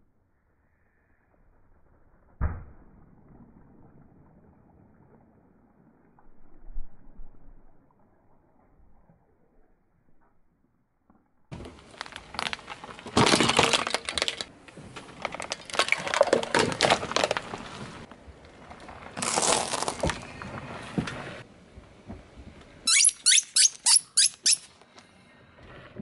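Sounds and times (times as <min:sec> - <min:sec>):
plastic cracking under a tyre: 0:11.5 - 0:21.2.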